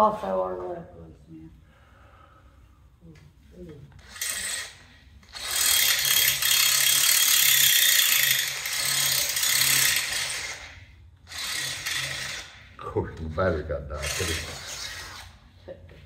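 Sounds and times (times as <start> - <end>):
cordless drill drilling: 4.0 - 12.8, 14.0 - 15.4.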